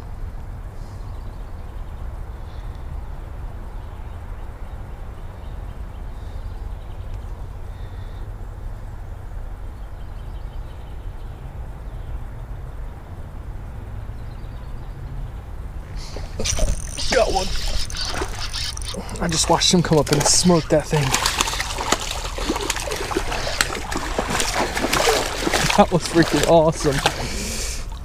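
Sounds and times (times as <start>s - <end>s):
faint bird chirps: 15.9s - 23.7s.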